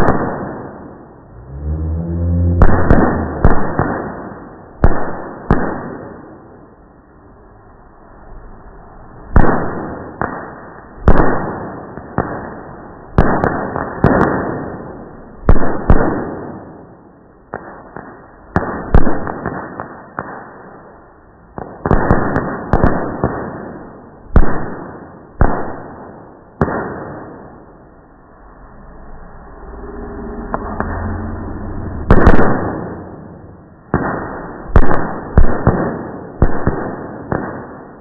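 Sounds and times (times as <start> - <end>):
fireworks bangs: 0.0 - 1.2, 2.3 - 6.4, 9.3 - 20.6, 21.5 - 28.4, 32.0 - 38.0.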